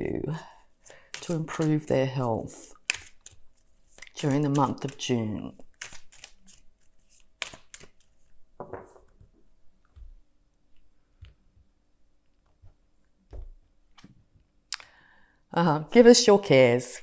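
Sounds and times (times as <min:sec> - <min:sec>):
cards snapping and tapping: 0:02.8 - 0:08.1.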